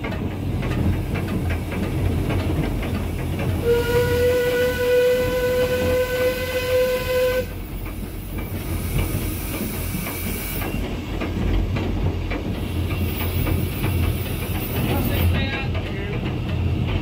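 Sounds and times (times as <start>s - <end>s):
steam locomotive running: 0.0s - 17.0s
wheels clicking over rails: 0.0s - 17.0s
steam whistle: 3.6s - 7.6s.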